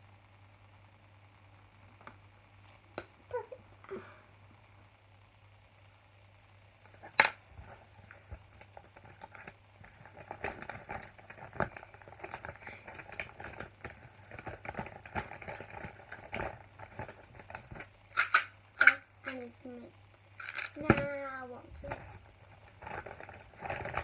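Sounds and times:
small items rattling in bag: 7.6s - 18.3s, 20.4s - 20.9s, 21.8s - 24.0s.

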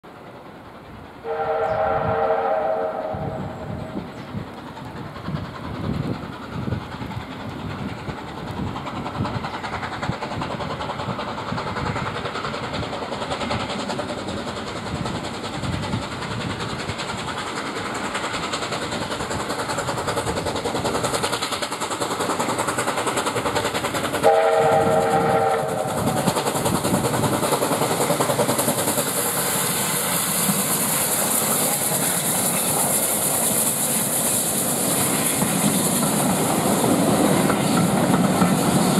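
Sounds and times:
steam locomotive exhaust beats: 0.0s - 38.9s
steam whistle: 1.2s - 3.8s, 24.2s - 26.1s.

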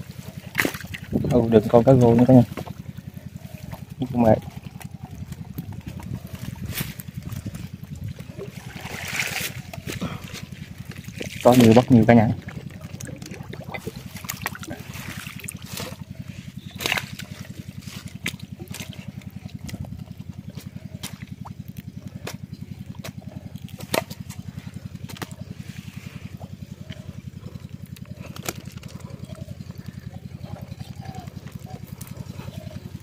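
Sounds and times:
low pulsing hum: 0.0s - 33.0s
water trickling and splashing: 0.0s - 33.0s.

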